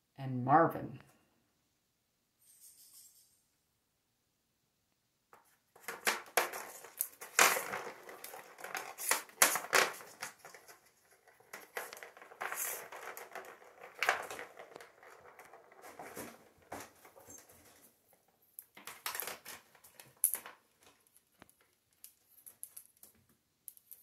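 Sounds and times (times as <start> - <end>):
claws skittering on hard floor: 5.4 - 17.9.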